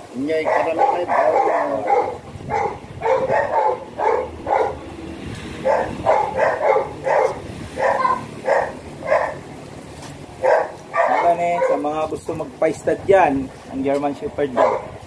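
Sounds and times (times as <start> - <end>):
dog barking: 0.4 - 4.9, 5.6 - 9.4, 10.4 - 11.9, 14.5 - 15.0.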